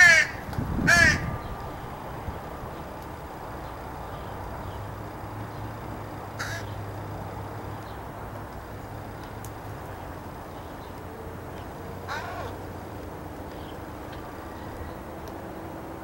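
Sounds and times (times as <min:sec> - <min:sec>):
crows calling harshly: 0:00.0 - 0:01.4, 0:06.4 - 0:06.8, 0:12.0 - 0:12.7.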